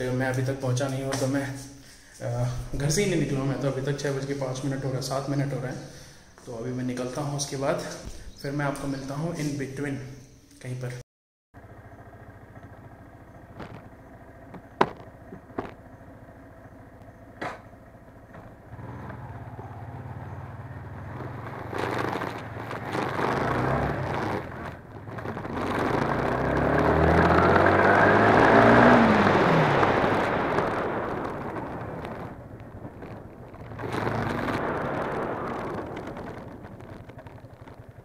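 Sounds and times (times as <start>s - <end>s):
motorcycle engine: 11.6s - 38.0s.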